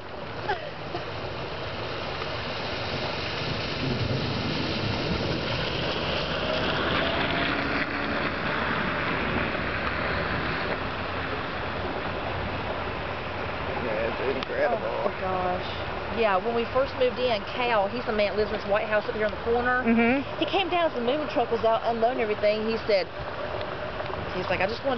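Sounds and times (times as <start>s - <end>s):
torrential rain on floodwater: 0.0s - 24.9s.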